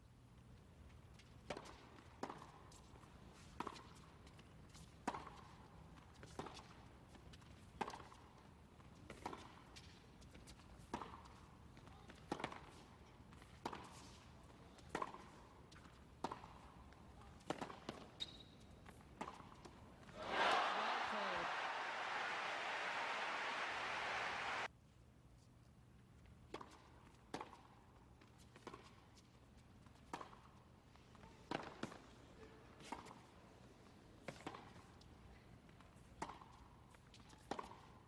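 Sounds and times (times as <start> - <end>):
shoe squeak on court: 17.9 - 18.9.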